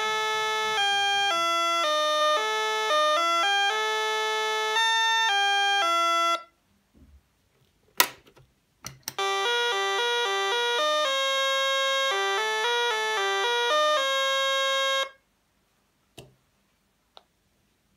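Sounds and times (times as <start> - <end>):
electronic doorbell chime melody: 0.0 - 6.5, 9.2 - 15.2.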